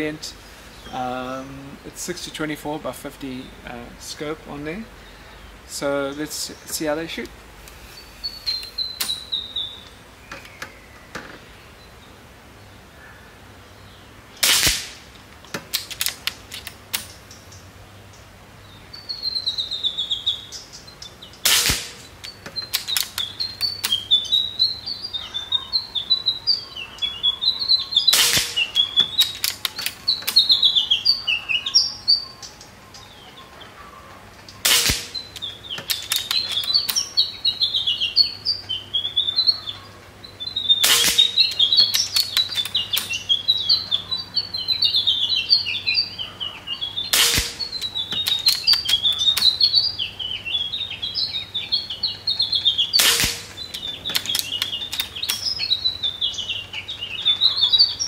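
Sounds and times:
small birds chirping: 0.0 - 58.0
air rifle shots: 14.4 - 17.2, 21.4 - 23.2, 28.1 - 30.6, 34.6 - 37.1, 40.8 - 43.2, 47.1 - 49.6, 52.7 - 55.5.

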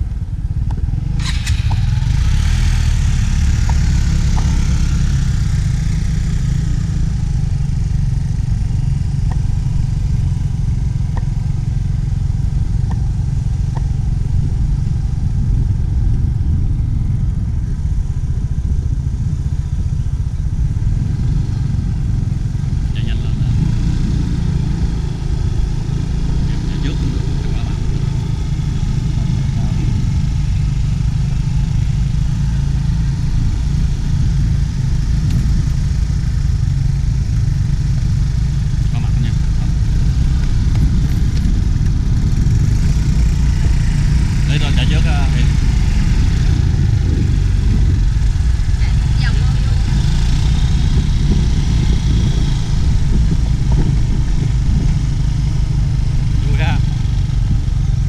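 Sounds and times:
motor scooter engine rumbling: 0.0 - 58.0.

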